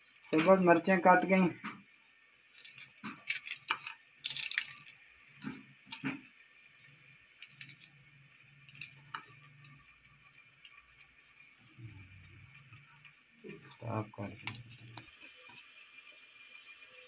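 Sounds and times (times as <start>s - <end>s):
pieces dropping onto plate: 2.6s - 6.3s, 7.4s - 8.0s
faint low hum: 8.6s - 15.1s.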